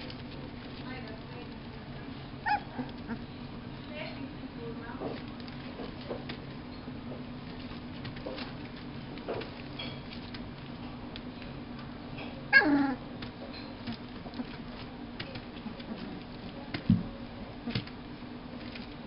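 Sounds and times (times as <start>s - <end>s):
puppies rustling on newspaper: 0.0s - 11.8s, 13.1s - 19.0s
puppy yelping: 2.4s - 3.3s, 12.5s - 13.0s.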